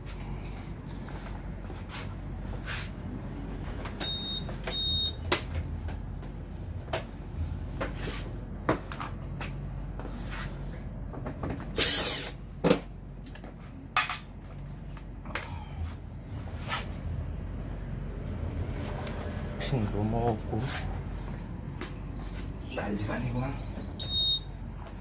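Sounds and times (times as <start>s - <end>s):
cordless drill bursts: 11.8s - 12.4s.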